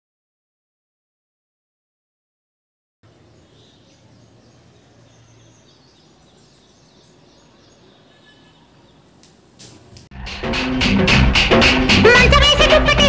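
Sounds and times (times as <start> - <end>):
faint bird chirps: 3.1 - 9.2.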